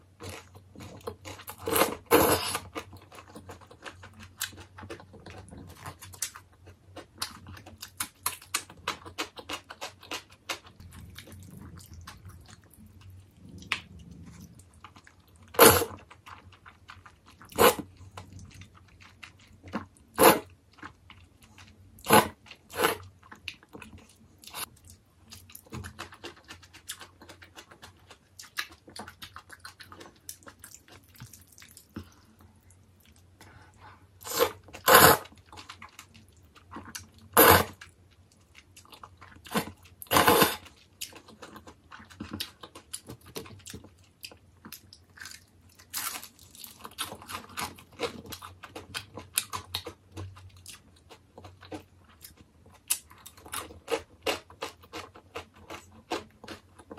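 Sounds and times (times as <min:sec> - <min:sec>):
wet chewing: 0:00.2 - 0:56.9
slurping noodles: 0:34.2 - 0:35.3, 0:37.4 - 0:37.8, 0:40.1 - 0:40.6.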